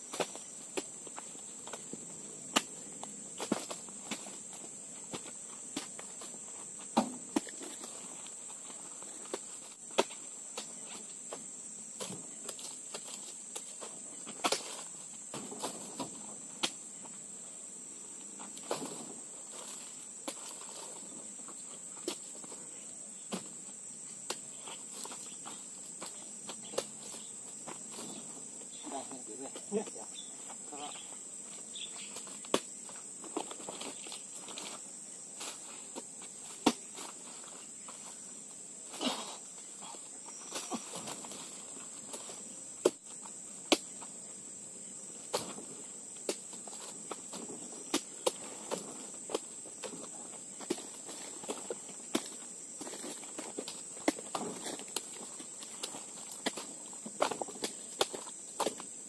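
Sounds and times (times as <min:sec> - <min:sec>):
high insect drone: 0:00.0 - 0:59.0
fruit bunches thudding into truck bed: 0:06.9 - 0:07.6
high-pitched insect drone: 0:24.6 - 0:33.0.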